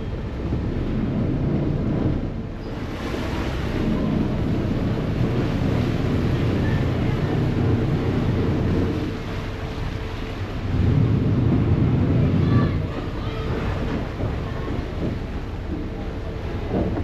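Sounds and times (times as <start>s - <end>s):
ferry engine rumbling: 0.0s - 17.0s
propeller churning water: 0.0s - 17.0s
wind buffeting microphone: 0.0s - 17.0s.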